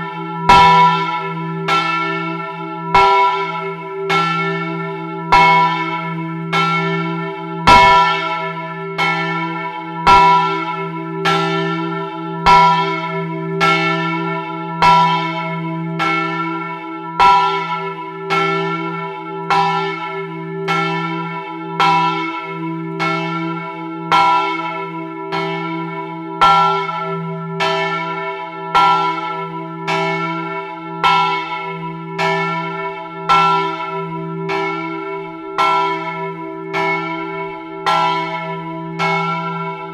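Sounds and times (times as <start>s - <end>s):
large church bell ringing: 0.0s - 39.9s.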